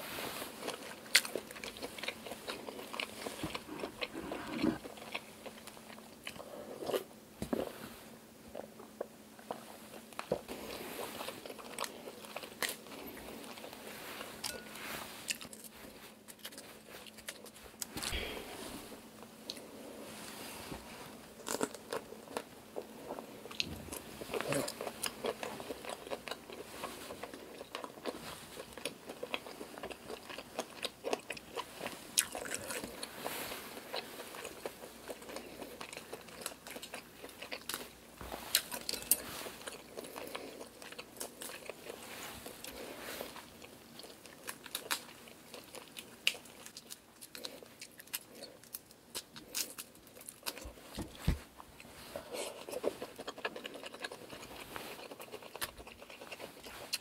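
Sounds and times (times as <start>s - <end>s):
chewing and crunching: 0.3s - 7.7s, 8.4s - 57.0s.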